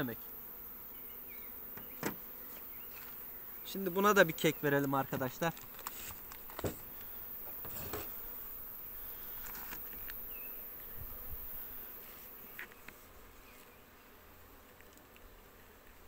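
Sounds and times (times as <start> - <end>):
honeybees buzzing: 0.0 - 16.0
light clicks from hive: 4.3 - 8.2, 9.4 - 10.2, 12.5 - 13.8, 14.6 - 16.0.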